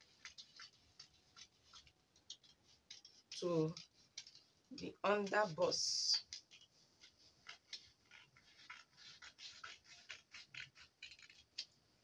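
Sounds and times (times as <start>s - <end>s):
scissors snipping paper: 6.2s - 11.7s.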